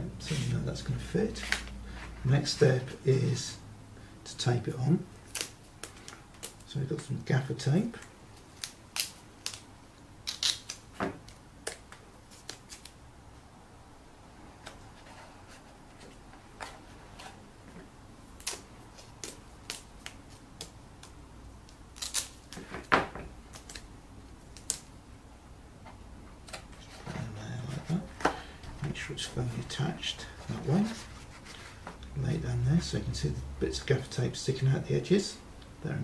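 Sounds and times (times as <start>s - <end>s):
tape ripping: 5.2s - 6.7s, 8.5s - 13.0s, 18.4s - 20.7s, 21.9s - 22.9s, 24.5s - 24.9s.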